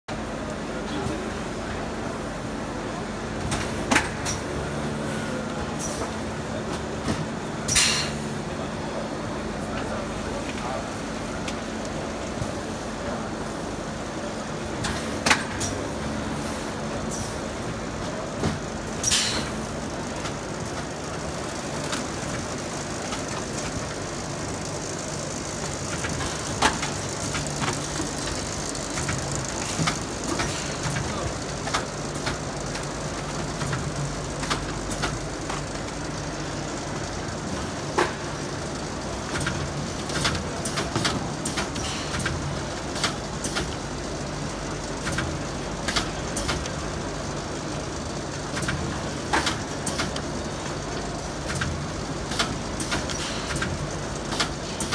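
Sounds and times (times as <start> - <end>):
machinery humming: 0.1 - 54.9
machine clicks and knocks: 25.2 - 36.2, 39.2 - 43.8, 45.0 - 46.8, 48.4 - 54.9.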